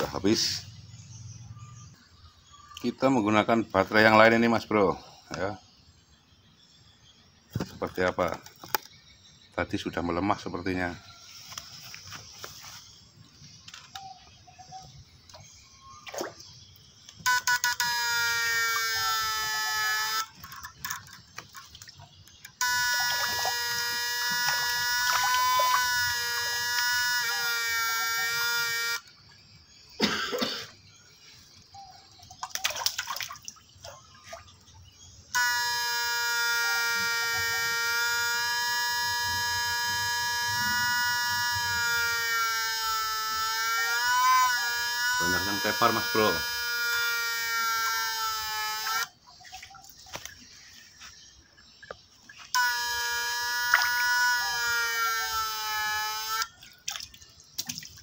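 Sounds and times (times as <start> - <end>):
electronic whine: 0.0 - 30.6, 34.8 - 49.4, 50.1 - 56.6
water splashes: 20.3 - 22.1, 32.3 - 34.6, 56.5 - 58.0
short clicks: 52.5 - 56.5.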